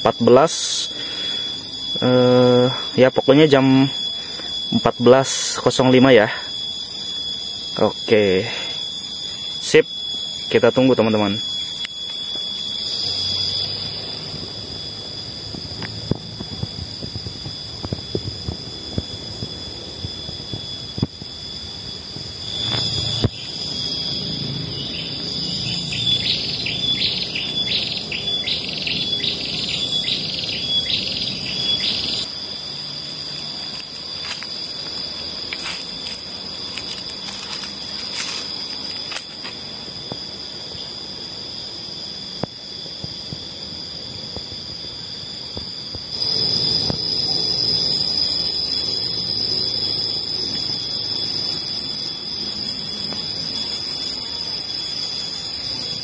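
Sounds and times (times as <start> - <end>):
insects droning: 0.0 - 56.0
bird calling: 24.2 - 32.3.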